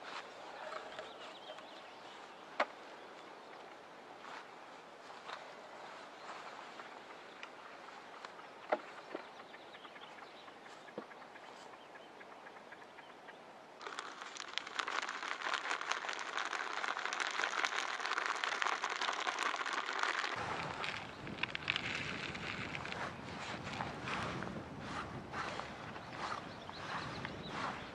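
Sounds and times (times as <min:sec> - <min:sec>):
groundbait trickling into bucket: 0:13.8 - 0:23.8
crackling rustle of groundbait: 0:13.8 - 0:27.8.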